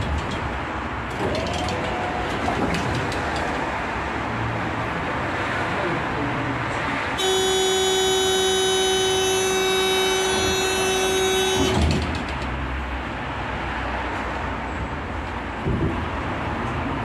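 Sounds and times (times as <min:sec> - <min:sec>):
tram doors shutting thump: 0:00.0 - 0:04.0, 0:07.2 - 0:12.8
tram running hum: 0:00.0 - 0:17.0
tram door warning buzzer: 0:07.2 - 0:12.2.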